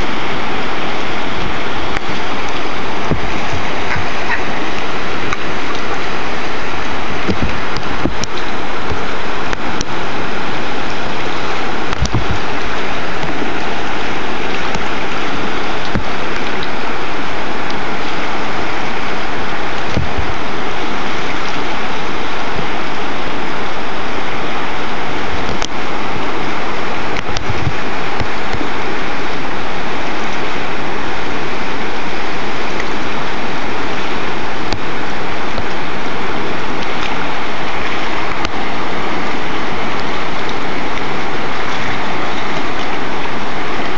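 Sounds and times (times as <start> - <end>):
river rapids rushing: 0.0 - 43.9
low bumps: 1.3 - 6.2, 11.0 - 16.8.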